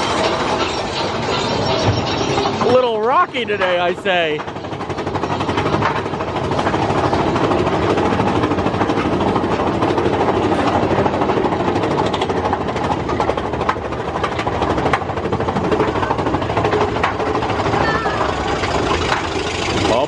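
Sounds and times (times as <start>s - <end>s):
roller coaster rumbling on track: 0.0s - 20.0s
wheels clacking over rails: 0.0s - 20.0s.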